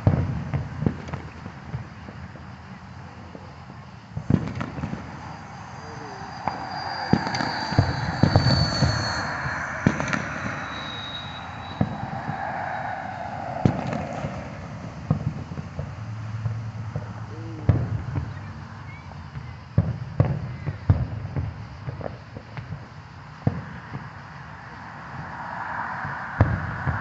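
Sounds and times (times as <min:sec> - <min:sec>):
firework bangs: 0:03.3 - 0:18.4, 0:23.4 - 0:27.0.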